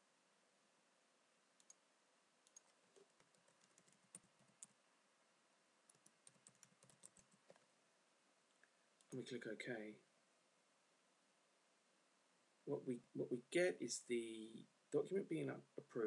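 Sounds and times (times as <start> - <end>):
faint keyboard typing: 1.6 - 1.8, 2.4 - 4.8, 5.9 - 7.7, 8.5 - 9.3.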